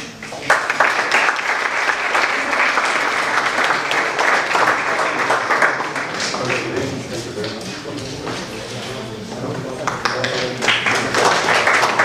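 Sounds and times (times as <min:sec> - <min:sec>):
audience applauding: 0:00.2 - 0:07.6, 0:09.9 - 0:12.0.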